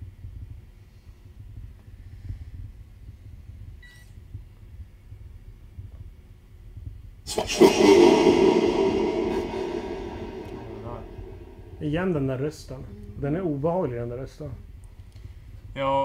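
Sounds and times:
faint electronic beep: 3.8s - 4.1s
harsh static electronic voice: 7.3s - 11.9s
low room hum: 7.3s - 16.0s.

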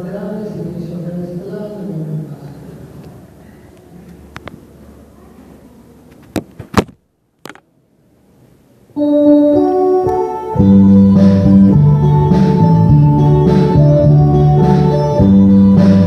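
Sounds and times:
keyboard music: 9.0s - 16.0s
bass line: 10.6s - 16.0s.

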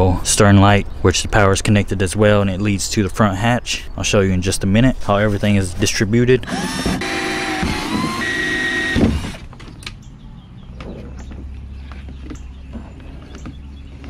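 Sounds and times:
drill boring into plastic: 6.4s - 9.4s.

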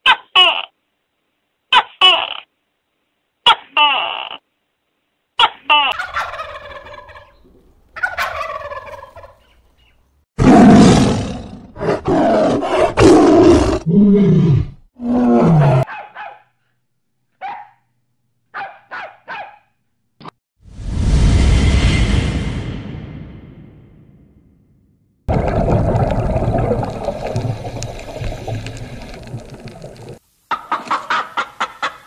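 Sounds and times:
turkey gobbling: 5.9s - 10.0s, 30.5s - 32.0s
tiger roaring and growling: 10.4s - 15.9s
puppy barking: 15.9s - 16.6s, 17.4s - 17.9s, 18.5s - 19.8s.

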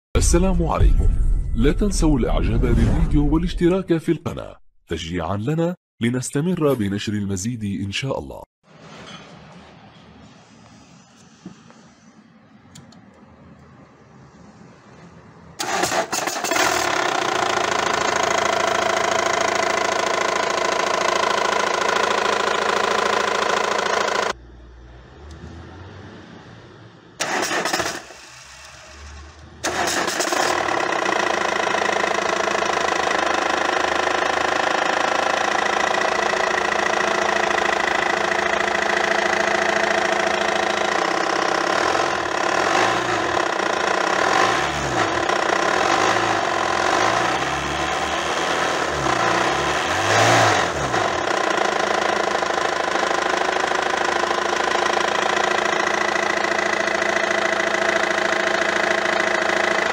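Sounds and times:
diesel car engine idling: 30.6s - 59.9s.

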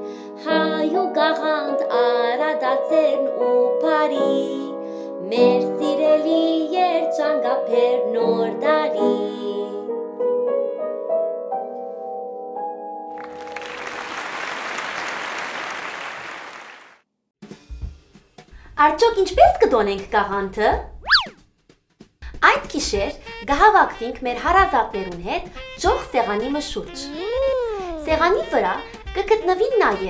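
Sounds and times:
woman singing: 0.4s - 9.9s
audience applause: 13.2s - 17.0s.

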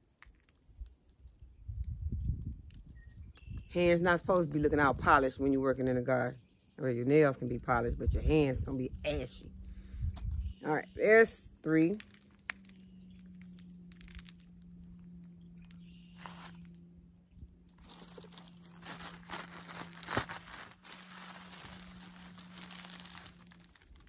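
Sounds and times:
packaging crinkling and rustling: 0.0s - 1.9s, 11.9s - 16.9s, 17.7s - 24.0s
low steady hum: 0.6s - 24.0s.

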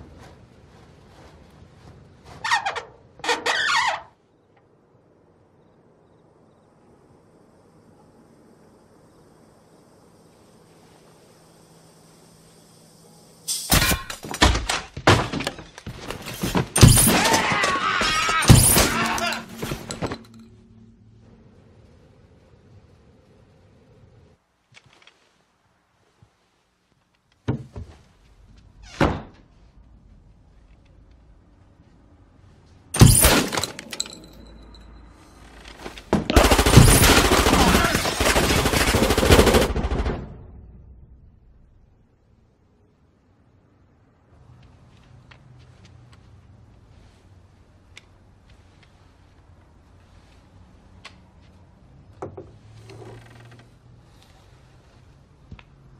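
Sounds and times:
crashes and knocks: 13.8s - 20.2s
shotgun blasts: 36.3s - 38.5s
automatic gunfire burst: 36.3s - 40.1s
loud gunshots: 36.3s - 40.2s.

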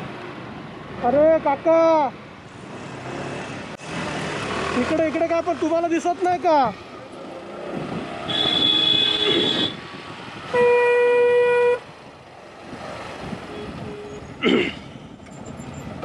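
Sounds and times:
traffic engine hum: 0.0s - 16.0s
higher-pitched car horn honk: 8.3s - 9.8s, 10.5s - 11.8s
loud steady car horn: 8.3s - 9.8s, 10.5s - 11.8s.

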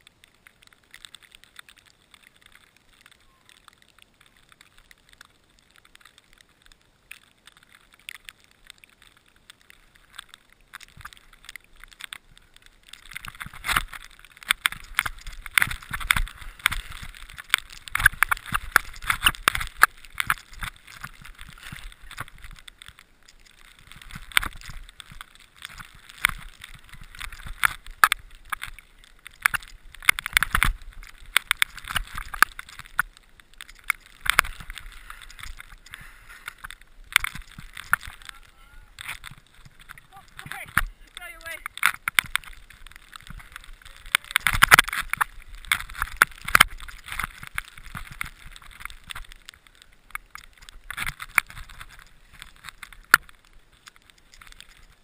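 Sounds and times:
sharp clicks and knocks: 39.0s - 49.4s.

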